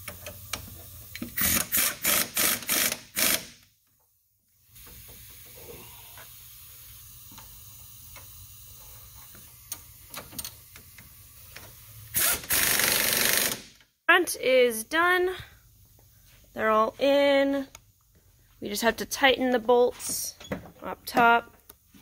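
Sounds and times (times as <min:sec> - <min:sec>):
impact wrench hammering: 0:01.2 - 0:03.6.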